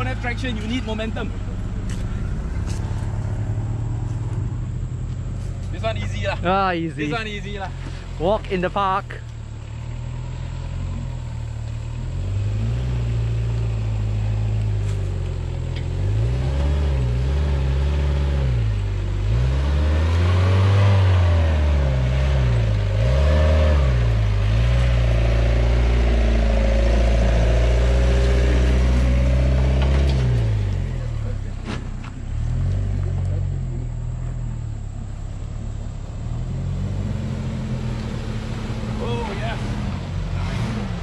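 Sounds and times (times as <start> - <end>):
engine revving uphill: 0.0 - 41.0.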